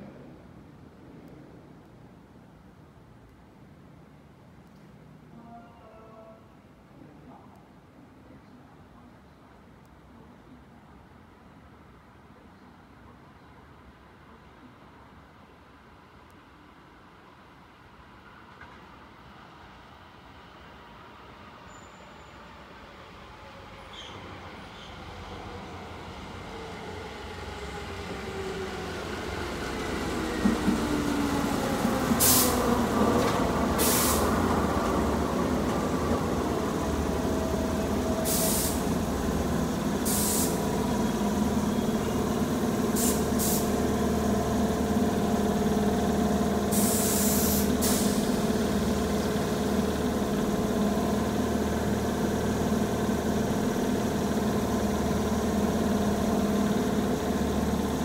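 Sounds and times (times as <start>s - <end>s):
train equipment humming: 23.2s - 58.0s
brake air hissing bursts: 33.8s - 34.2s, 38.3s - 38.9s, 40.0s - 40.7s, 43.0s - 43.7s, 46.7s - 48.3s.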